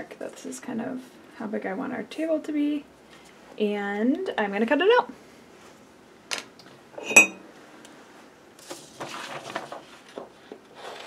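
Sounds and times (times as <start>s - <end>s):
paper rustling and scraping: 8.6s - 11.0s.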